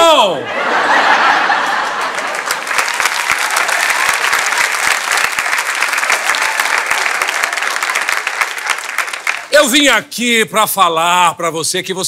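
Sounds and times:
audience applauding: 1.0 - 10.0.

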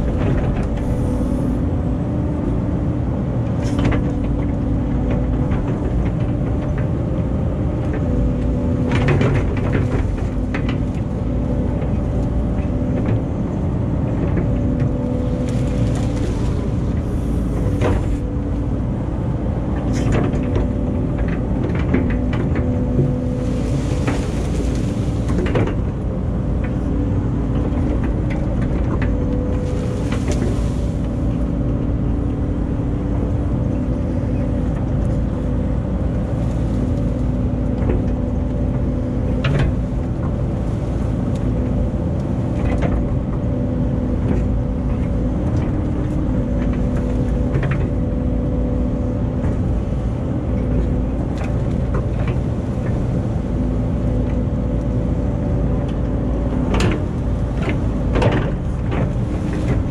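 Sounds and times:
excavator diesel engine running: 0.0 - 59.9
hydraulic whine: 0.1 - 2.0, 11.1 - 19.2.

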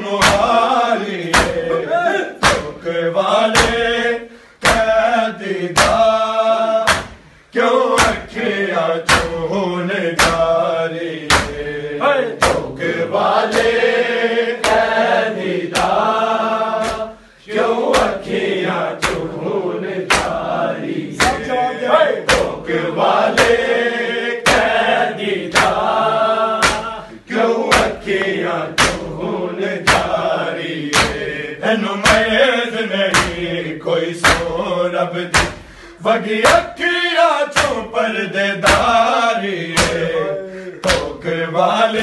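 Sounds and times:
men chanting: 0.0 - 42.0
hands slapping bare chests: 0.2 - 1.8, 2.4 - 2.8, 3.6 - 4.0, 4.6 - 5.1, 5.7 - 6.2, 6.8 - 7.3, 8.0 - 8.5, 9.1 - 9.5, 10.2 - 10.6, 11.2 - 11.7, 12.4 - 13.9, 14.6 - 16.2, 16.8 - 21.6, 22.3 - 23.7, 24.4 - 26.0, 26.6 - 31.4, 32.0 - 32.4, 33.0 - 33.6, 34.2 - 34.7, 35.3 - 35.8, 37.5 - 37.8, 38.6 - 40.2, 40.8 - 41.2.

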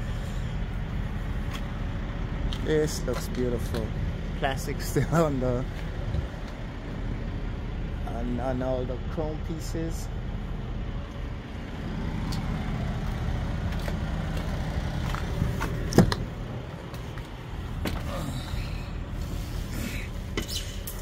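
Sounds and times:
engine idling: 0.0 - 21.0
handling knocks and clicks: 13.7 - 18.1
truck door clunk: 15.0 - 18.2.

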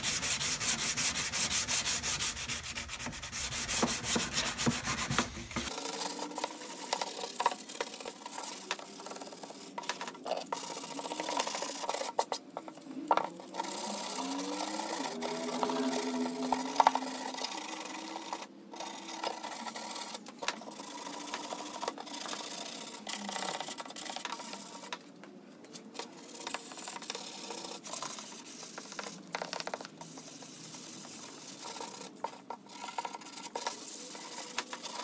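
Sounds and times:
sanding sponge rasping on metal: 0.0 - 6.2.

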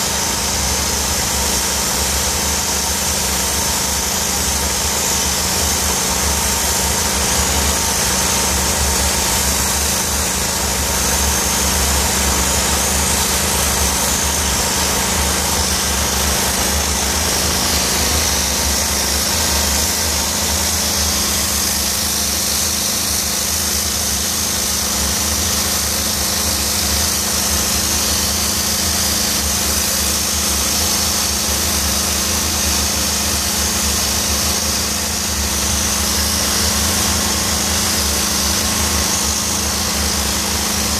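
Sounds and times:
machine engine humming: 0.0 - 31.2
steam lance hissing: 0.0 - 40.9.

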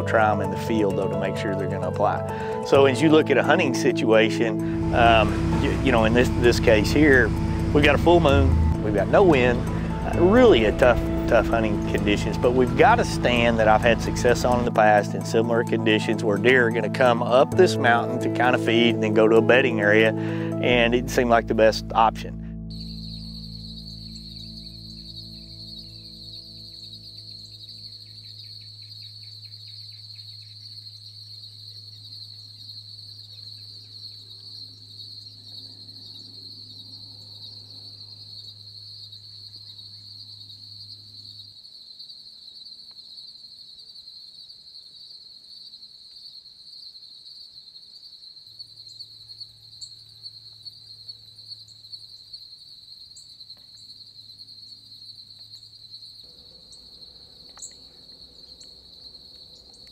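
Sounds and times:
insects trilling: 0.0 - 59.9
faint ticks: 42.5 - 43.4, 53.2 - 53.9, 57.3 - 59.9.

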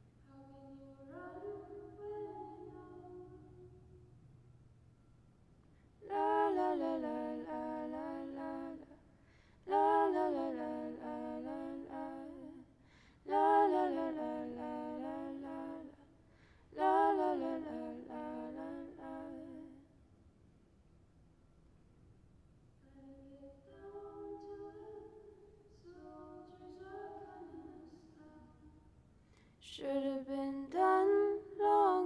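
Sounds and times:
woman singing wordless phrases: 0.3 - 3.8, 6.0 - 9.0, 9.7 - 12.6, 16.8 - 19.8, 29.6 - 32.0.

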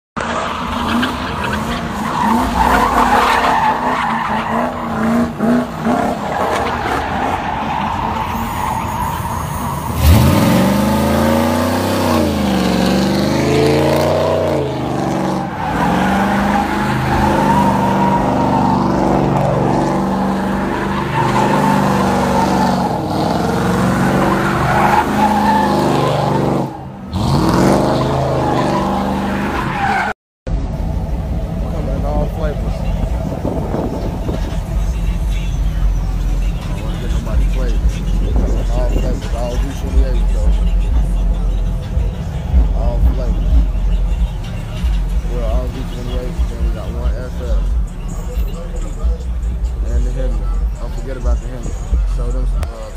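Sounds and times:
tires squealing: 0.2 - 30.2, 30.8 - 52.9
car engine revving hard: 9.9 - 29.5.

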